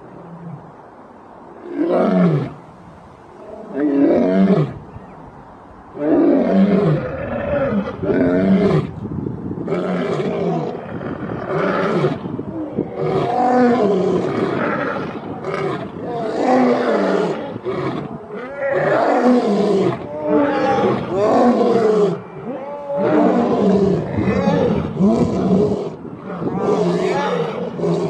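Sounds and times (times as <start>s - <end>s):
lions roaring: 12.8s - 28.0s.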